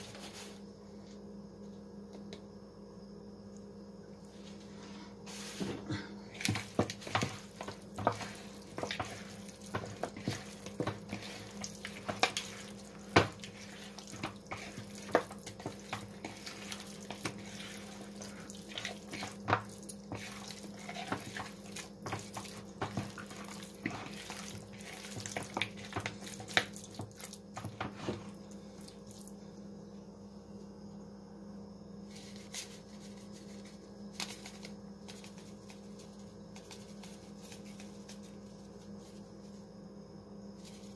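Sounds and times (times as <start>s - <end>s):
hands kneading wet chicken: 6.3s - 29.3s.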